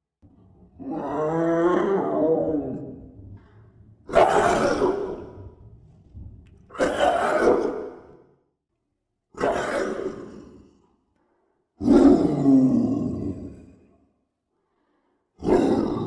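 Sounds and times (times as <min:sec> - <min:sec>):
animal roaring: 0:00.7 - 0:05.6, 0:06.7 - 0:08.2, 0:09.4 - 0:10.8, 0:11.8 - 0:13.8, 0:15.4 - 0:16.0.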